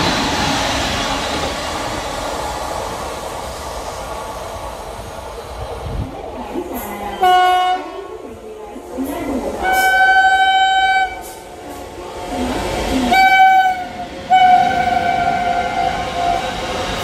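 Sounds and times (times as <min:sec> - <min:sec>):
low rumble of train: 0:00.0 - 0:17.0
train horn blasts: 0:07.2 - 0:08.0, 0:09.6 - 0:11.4, 0:13.1 - 0:15.9.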